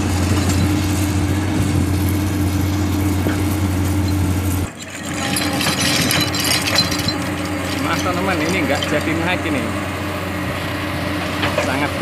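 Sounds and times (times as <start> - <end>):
diesel engine idling: 7.1 - 12.0.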